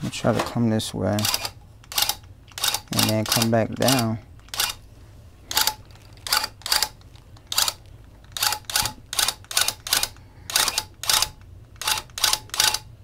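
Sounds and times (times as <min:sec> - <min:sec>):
tufting gun bursts: 0:01.2 - 0:04.8, 0:05.5 - 0:12.9.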